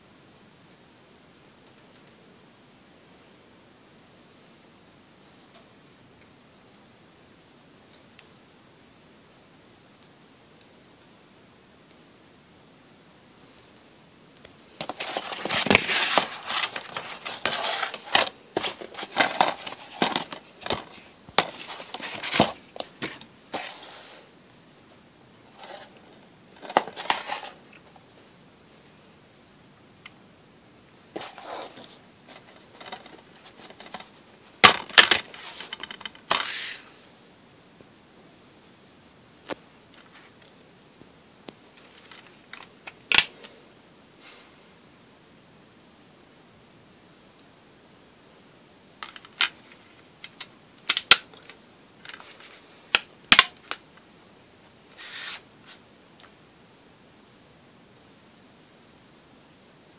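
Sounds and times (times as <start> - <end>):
plastic case rustling: 14.8 - 24.2, 25.5 - 27.6, 31.1 - 36.8.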